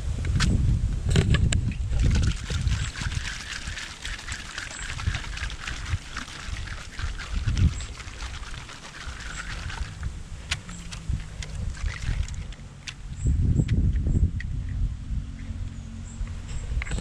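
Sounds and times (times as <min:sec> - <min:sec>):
aerosol can rattling when shaken: 0:02.0 - 0:12.6.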